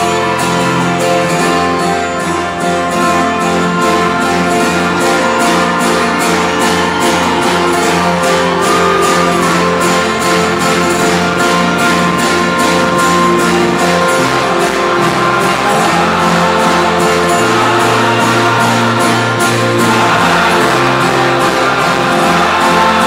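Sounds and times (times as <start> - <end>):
acoustic guitar strumming: 0.0 - 23.0
folk-rock band playing: 0.0 - 23.0.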